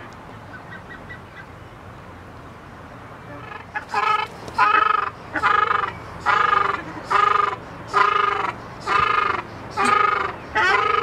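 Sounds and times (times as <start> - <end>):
duck calling: 3.3 - 11.0.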